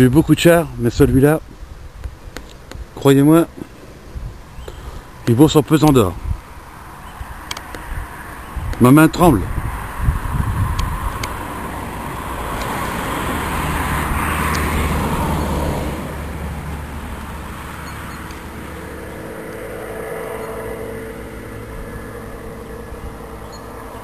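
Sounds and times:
car passing by: 7.1 - 24.0.

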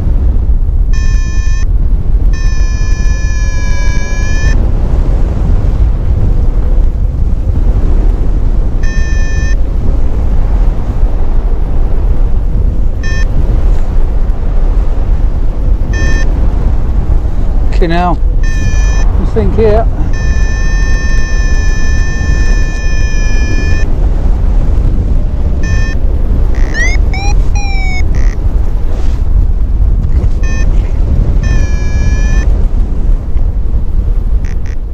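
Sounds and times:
wind buffeting microphone: 0.0 - 34.9
electronic beep: 1.0 - 1.7, 2.4 - 4.6, 8.8 - 9.6, 13.0 - 13.3, 16.0 - 16.3, 18.4 - 19.1, 20.1 - 23.9, 25.6 - 26.0, 26.6 - 28.4, 30.4 - 30.7, 31.4 - 32.5.

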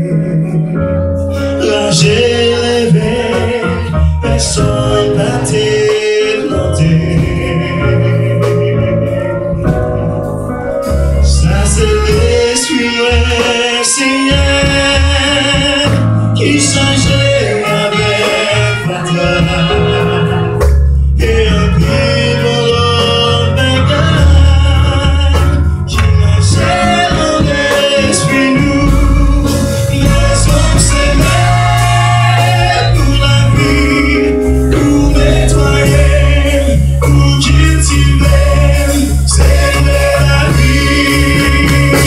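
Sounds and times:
instrumental accompaniment: 0.0 - 42.0
man singing into microphone: 0.0 - 42.0.

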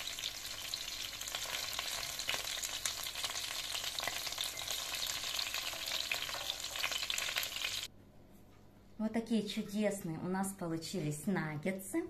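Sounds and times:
chicken sizzling in hot oil: 0.0 - 7.9.

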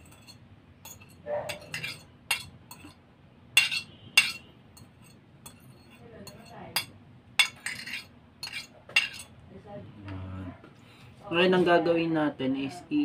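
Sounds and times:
fork scraping and clinking on plate: 0.0 - 3.0, 3.6 - 9.3.

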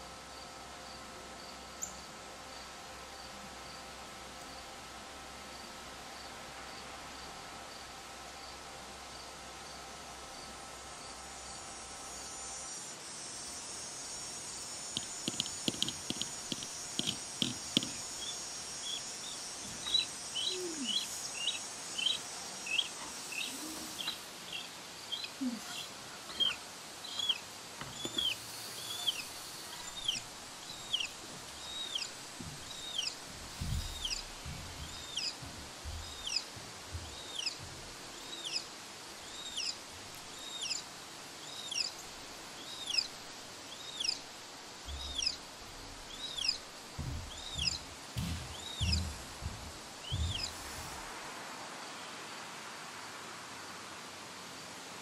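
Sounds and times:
faint steady hiss: 0.0 - 55.0
soft low knocks: 14.9 - 18.3, 32.0 - 38.2, 44.9 - 51.1.

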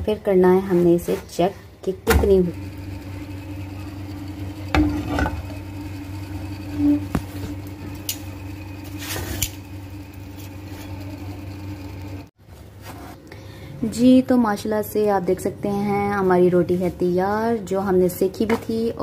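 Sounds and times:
low buzzing hum: 1.3 - 12.3.

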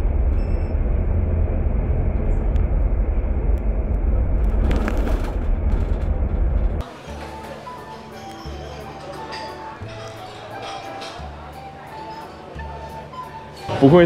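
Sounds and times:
bus engine and road rumble: 0.0 - 7.0.

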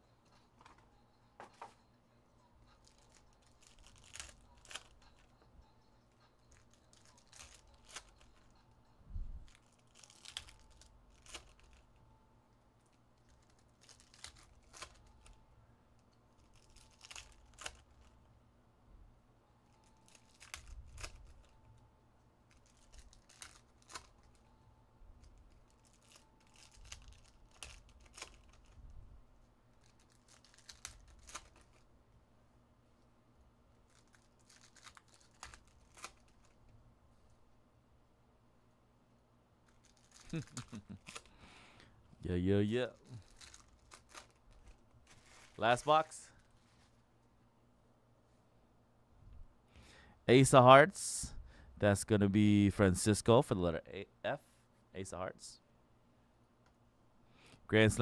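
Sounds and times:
foil wrappers tearing and crinkling: 2.8 - 5.0, 6.5 - 8.3, 9.5 - 11.8, 13.2 - 15.4, 16.4 - 18.1, 19.8 - 21.5, 22.5 - 24.4, 25.4 - 28.8, 29.8 - 31.8, 33.8 - 36.6, 39.7 - 41.3, 43.0 - 47.0
cards being handled: 2.8 - 5.3, 6.5 - 8.5, 9.4 - 11.9, 25.3 - 28.8, 29.8 - 31.8, 33.8 - 36.7, 39.6 - 41.4, 42.9 - 47.1.

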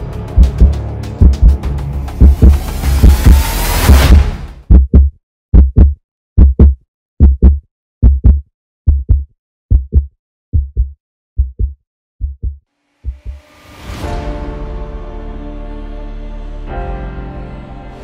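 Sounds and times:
heartbeat thumps: 0.4 - 3.4, 4.0 - 13.4.

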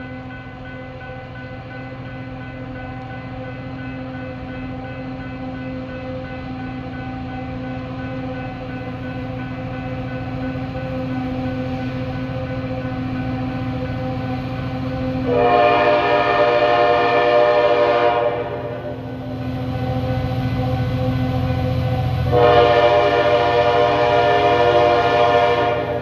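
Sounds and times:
locomotive horn blasts: 15.2 - 19.0, 22.3 - 26.0.

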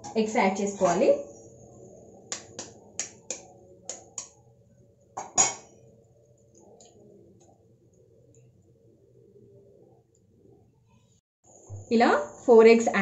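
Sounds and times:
egg tapping against spoon: 2.3 - 4.4.

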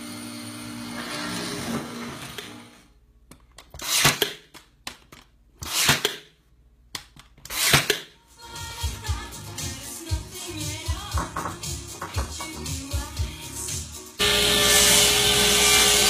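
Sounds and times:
background music with low beat: 8.5 - 14.2
power tool motor winding down: 14.2 - 16.0.

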